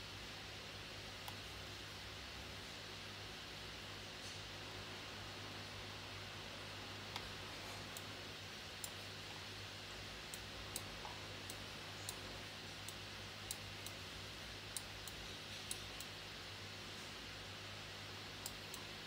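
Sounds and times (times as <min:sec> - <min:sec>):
steady low hum: 0:00.0 - 0:19.0
mouse clicks: 0:14.7 - 0:16.2.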